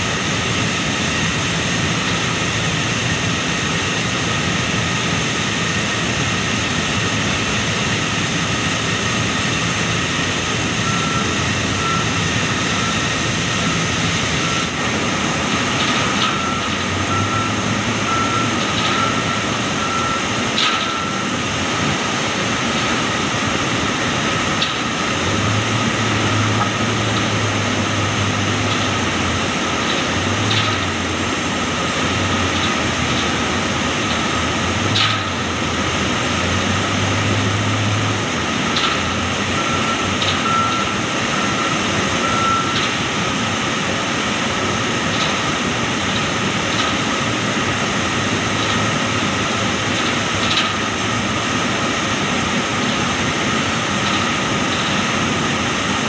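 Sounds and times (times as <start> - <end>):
diesel engine and hydraulics working: 0.0 - 56.0
reversing beeps: 10.8 - 14.8, 16.0 - 21.4, 39.5 - 42.9.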